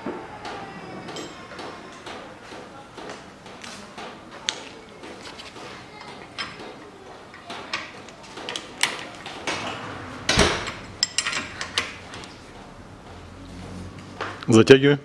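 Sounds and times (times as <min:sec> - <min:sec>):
metal tools clinking: 0:10.6 - 0:12.3.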